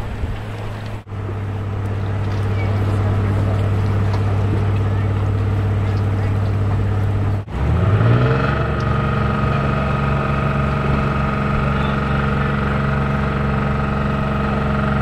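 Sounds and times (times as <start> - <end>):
boat engine droning: 0.0 - 15.0.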